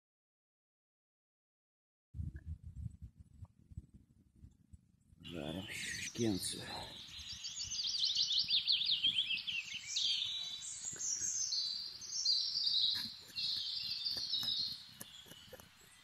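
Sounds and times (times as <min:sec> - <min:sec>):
songbird trilling: 0:05.3 - 0:16.0.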